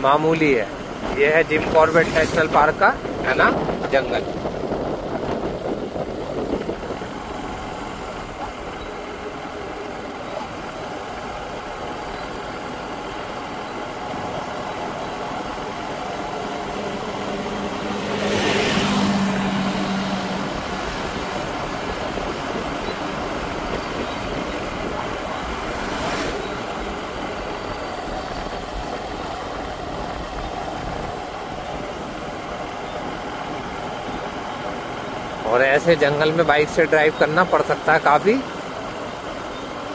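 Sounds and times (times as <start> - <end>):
vehicle passing: 0.0 - 5.8, 14.4 - 32.4
motorcycle running: 0.0 - 39.9
wind and road noise: 0.0 - 39.9.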